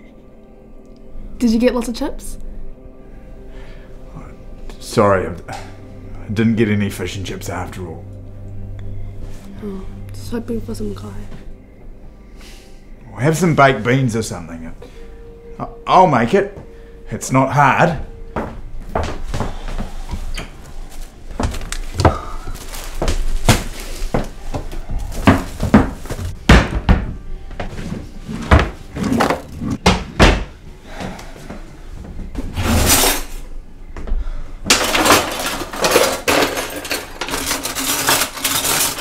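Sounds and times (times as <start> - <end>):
drawers and cupboard doors banging: 25.1 - 27.2, 27.9 - 30.6, 34.7 - 39.0
cutlery rattling in a drawer: 34.7 - 39.0.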